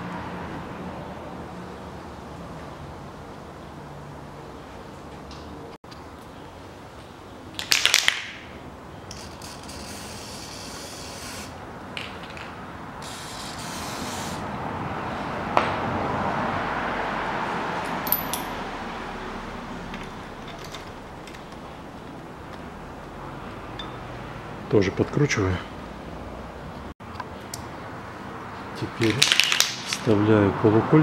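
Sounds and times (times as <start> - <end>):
metal parts clinking: 17.9 - 18.6, 19.9 - 21.8.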